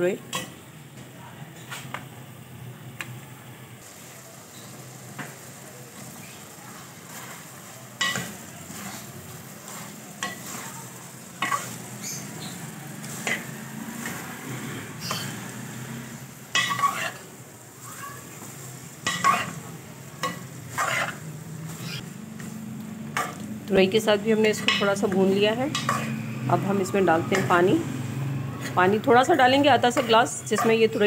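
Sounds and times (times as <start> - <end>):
food sizzling in a pot: 0.0 - 31.0
spoon clinking against pot: 25.7 - 26.2.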